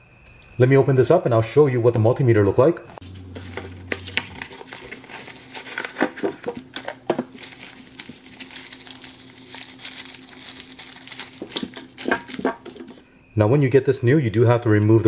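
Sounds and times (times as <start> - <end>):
bubble-wrap bag crinkling: 3.0 - 13.0
cardboard box being opened: 3.0 - 13.0.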